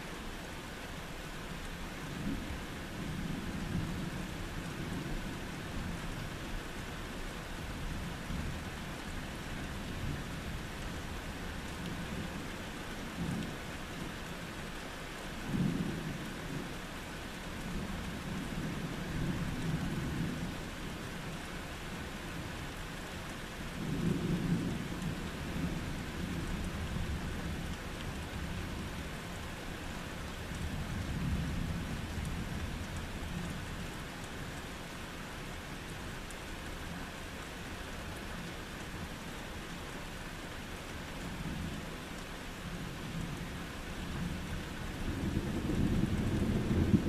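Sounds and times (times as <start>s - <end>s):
steady rain: 0.0s - 47.0s
rolling thunder: 45.1s - 47.0s.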